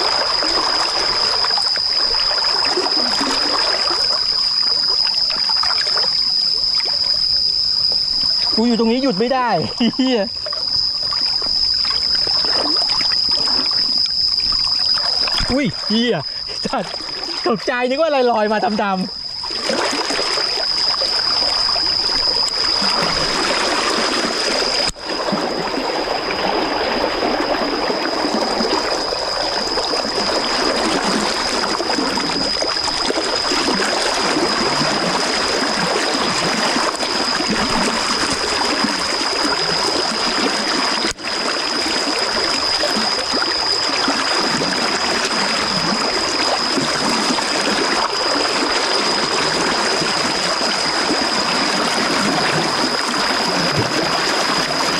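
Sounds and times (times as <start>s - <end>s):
thin high-pitched tone: 0.0s - 19.4s
stream running: 0.0s - 54.9s.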